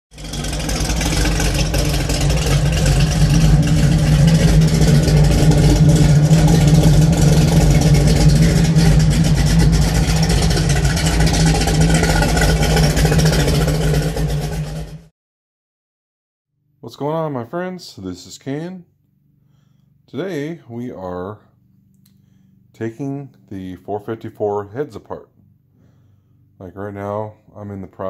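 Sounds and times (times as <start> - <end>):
vehicle engine running: 0.1 - 15.1.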